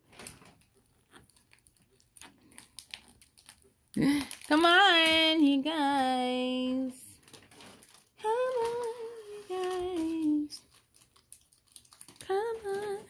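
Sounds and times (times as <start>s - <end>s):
person humming a tune: 8.2s - 10.6s, 12.2s - 13.0s.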